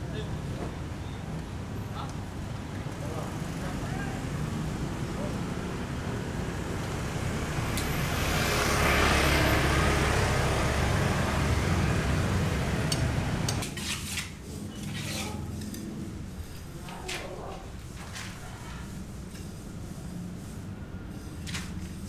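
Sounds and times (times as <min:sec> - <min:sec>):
passing vehicle rumble: 0:01.6 - 0:13.6.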